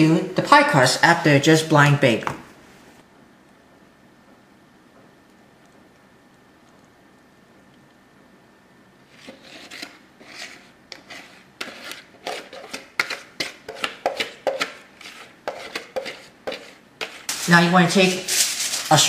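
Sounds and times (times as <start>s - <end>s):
spoon scraping a mixing bowl: 9.0s - 18.9s.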